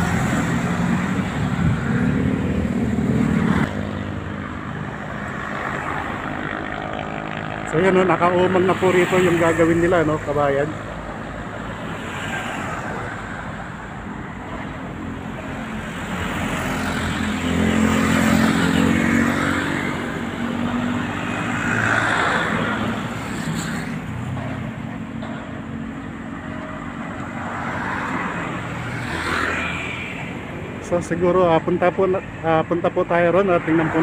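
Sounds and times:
vehicles driving past: 0.0s - 34.0s.

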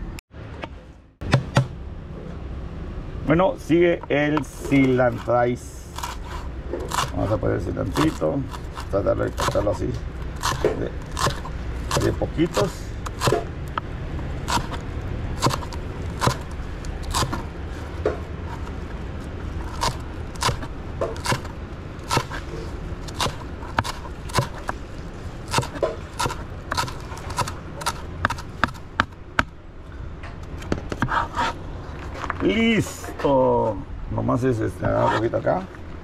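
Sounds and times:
low background rumble: 0.0s - 36.0s
knife chopping on plastic board: 1.2s - 1.8s, 7.8s - 9.8s, 10.4s - 13.5s, 14.5s - 14.8s, 15.4s - 16.5s, 17.1s - 17.4s, 19.7s - 21.5s, 22.1s - 22.4s, 23.1s - 24.8s, 25.5s - 29.6s.

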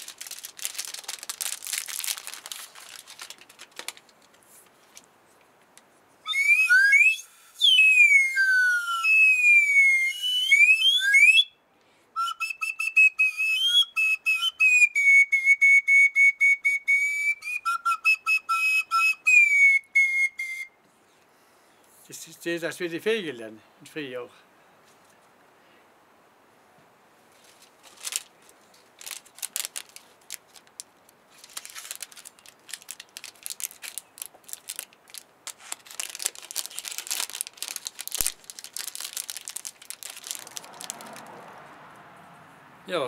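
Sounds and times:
hand whistle notes: 6.3s - 11.5s, 12.2s - 20.8s
faint rustling: 27.2s - 41.6s.

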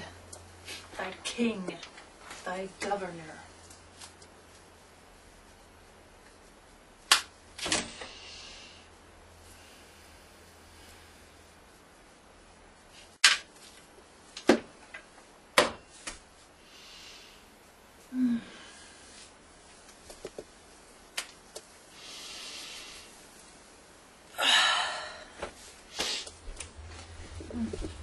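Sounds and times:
soft breathy sounds: 16.5s - 19.4s.

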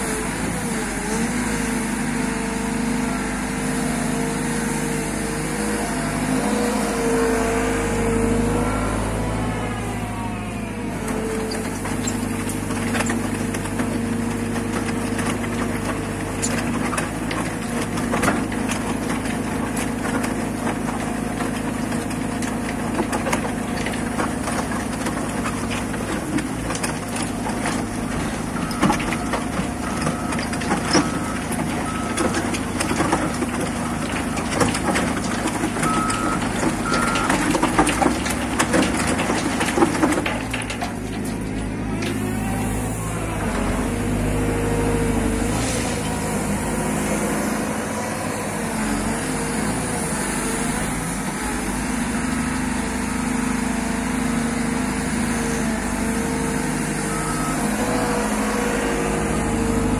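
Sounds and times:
diesel engine running: 0.0s - 59.9s
rock crunching in crusher bucket: 11.0s - 59.9s
reversing alarm beeps: 57.0s - 58.3s.

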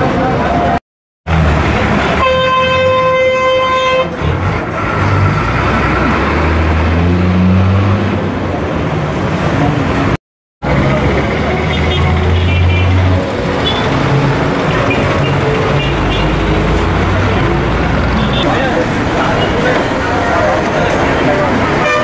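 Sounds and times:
bus engine hum: 0.0s - 22.0s
traffic noise: 0.0s - 22.0s
vehicle horn: 2.2s - 4.2s, 11.7s - 13.0s, 14.7s - 16.5s, 18.2s - 18.7s, 21.7s - 22.0s.

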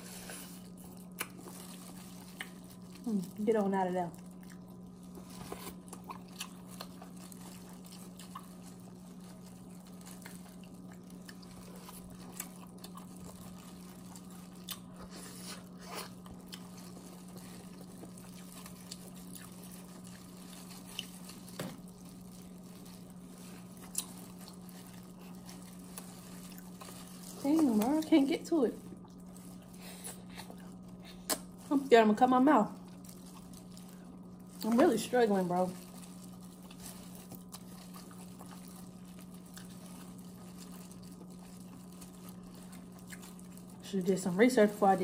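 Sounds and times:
chewing: 0.0s - 3.4s, 4.1s - 28.2s, 28.8s - 31.6s, 32.8s - 43.8s
crab shell crunching: 0.3s - 3.1s, 4.2s - 28.0s, 35.7s - 43.8s.

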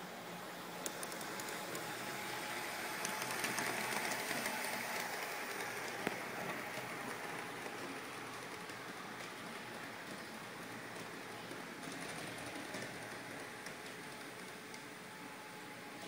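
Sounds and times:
model train motor whirring: 0.8s - 14.9s.

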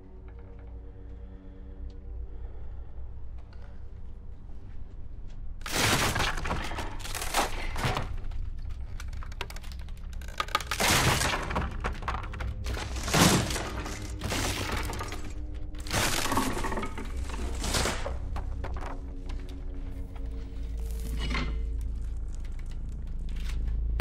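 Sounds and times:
steady low drone: 0.0s - 24.0s
floorboards cracking and splintering: 5.6s - 20.2s.

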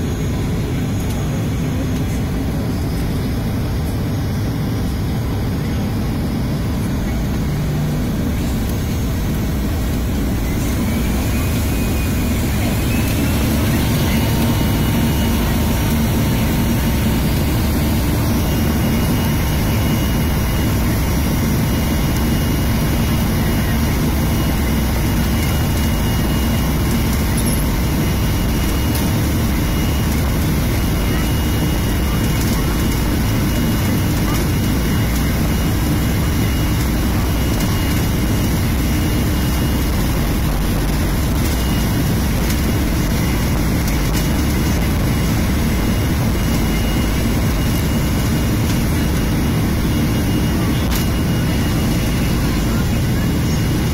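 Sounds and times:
jet engines rumbling and whining: 0.0s - 53.9s.

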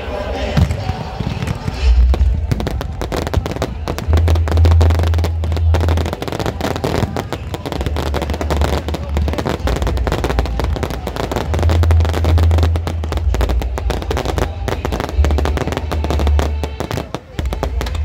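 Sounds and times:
fireworks bangs and crackling: 0.3s - 18.0s
deep rumble: 1.0s - 16.8s.

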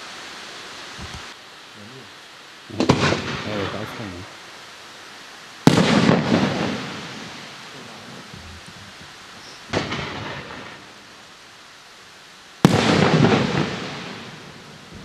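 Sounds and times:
firework shells booming: 2.7s - 4.0s, 5.6s - 11.0s, 12.6s - 15.0s.

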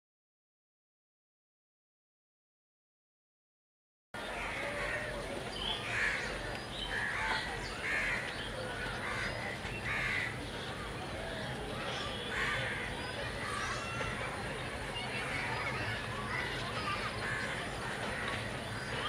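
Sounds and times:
crows cawing: 5.9s - 6.3s, 6.9s - 8.4s, 9.0s - 10.3s, 12.3s - 12.9s.

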